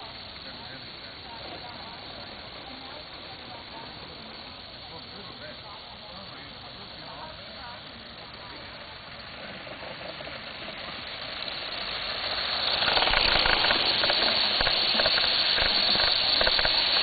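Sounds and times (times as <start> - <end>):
steam locomotive hissing: 0.0 - 17.0
quick clicks: 11.1 - 17.0.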